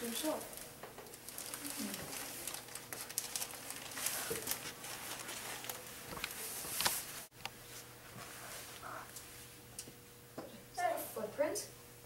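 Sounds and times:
plastic bags crinkling: 0.0s - 7.3s.

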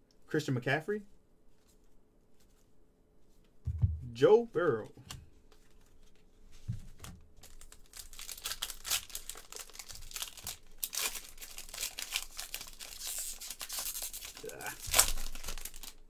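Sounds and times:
foil pack crinkling and tearing: 7.4s - 16.0s.

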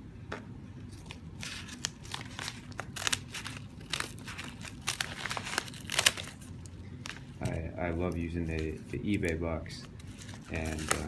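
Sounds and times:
scissors cutting padded envelope: 1.0s - 6.4s.

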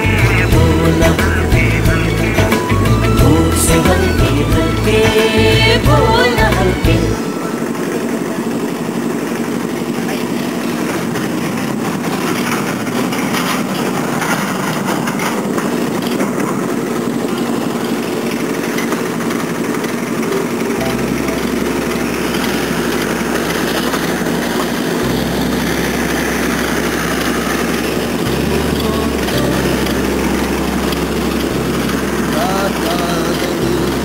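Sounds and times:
brick-making machine droning: 0.0s - 34.0s.

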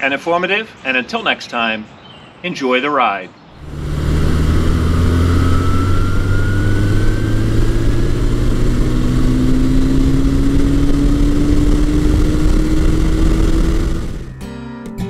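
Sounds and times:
wind and road noise: 3.5s - 14.4s
motorcycle engine accelerating: 3.6s - 14.4s.

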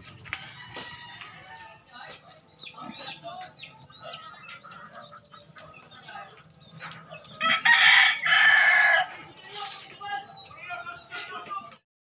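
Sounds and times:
rooster crowing: 0.3s - 1.8s, 7.4s - 9.1s
chickens clucking softly: 2.0s - 7.8s.

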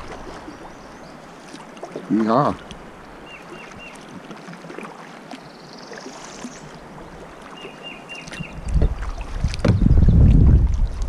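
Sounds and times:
water noise around kayak hull: 0.0s - 11.0s
wind buffeting microphone: 8.4s - 11.0s.

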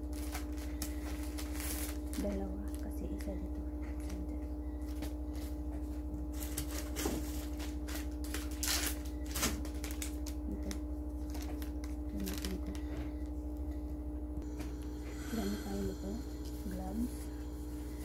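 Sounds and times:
plastic packet crinkling: 0.0s - 3.3s, 6.4s - 12.8s
steady low hum: 0.0s - 18.0s.

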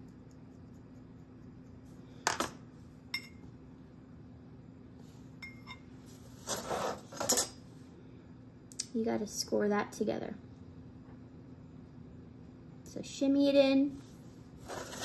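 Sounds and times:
faint steady hum: 0.0s - 15.0s
pottery tools clinking and clacking: 7.1s - 7.6s.

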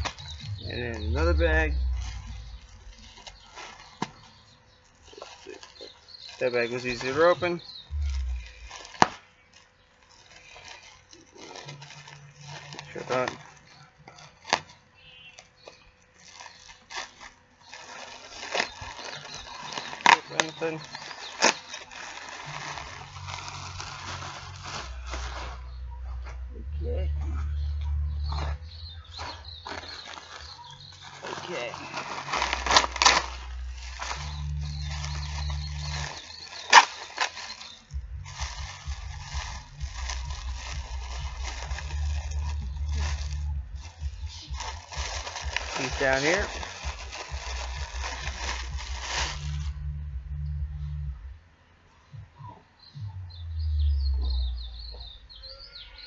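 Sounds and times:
low rumble: 0.0s - 3.8s, 7.8s - 9.0s, 22.9s - 29.2s, 32.3s - 36.2s, 37.9s - 51.5s
sharp plastic crackles: 0.0s - 25.7s, 28.3s - 49.8s
plastic bag crinkling: 0.0s - 26.2s, 28.4s - 49.8s.

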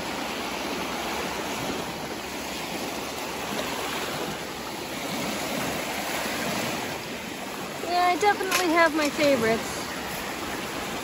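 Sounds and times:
waves washing over pebble beach: 0.0s - 11.0s.

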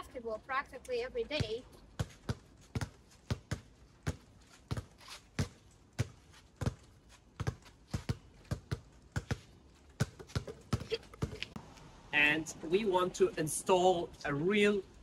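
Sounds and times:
basketballs bouncing on asphalt: 0.0s - 11.7s.

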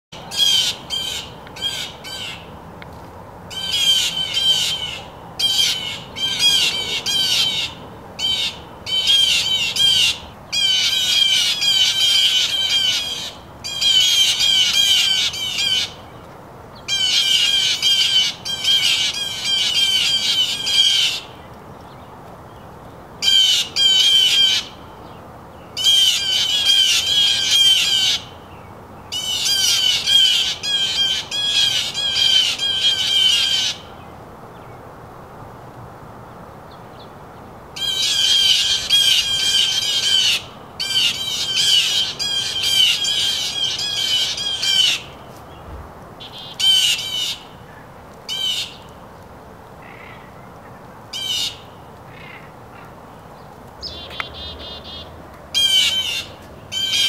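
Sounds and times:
bird calling harsh notes: 3.5s - 16.0s, 25.8s - 28.4s, 29.2s - 34.0s, 37.8s - 45.3s, 46.2s - 47.6s, 53.8s - 57.0s.

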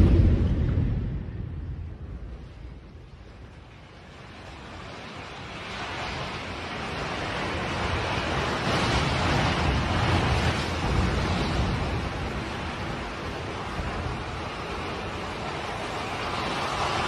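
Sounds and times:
building collapsing deep rumble: 0.0s - 4.7s.

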